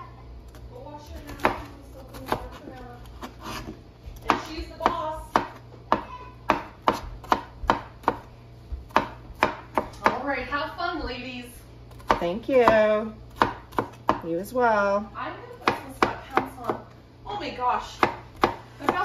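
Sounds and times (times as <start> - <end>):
knife chopping on plastic board: 0.5 - 10.3, 11.9 - 14.3, 15.5 - 16.9, 17.9 - 19.0.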